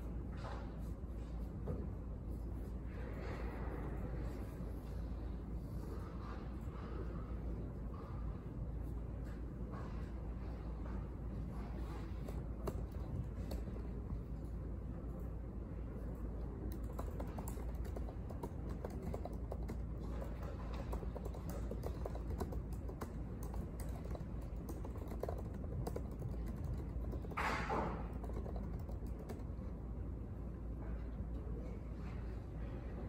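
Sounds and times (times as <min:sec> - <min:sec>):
low room hum: 0:00.0 - 0:33.0
typing on laptop keyboard: 0:11.9 - 0:14.1, 0:16.7 - 0:29.7.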